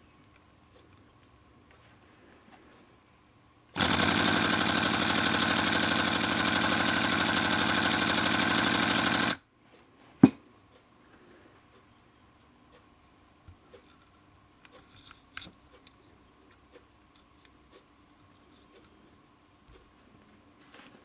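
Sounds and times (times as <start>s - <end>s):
model steam engine chuffing: 3.8s - 9.4s.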